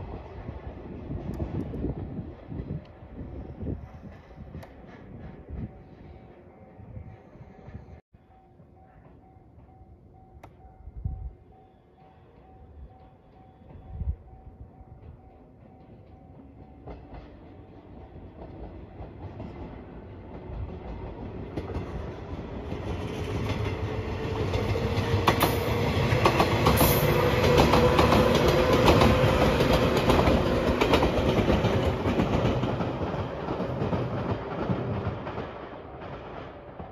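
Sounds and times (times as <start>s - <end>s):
train rumbling past: 0.0s - 36.9s
wheels clacking over rail joints: 15.7s - 36.9s.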